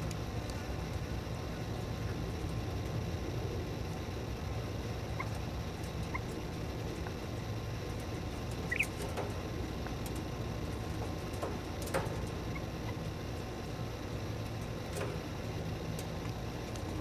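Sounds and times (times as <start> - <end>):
steady low hum: 0.0 - 17.0
quail pecking taps and clicks: 5.2 - 6.4, 8.0 - 13.0.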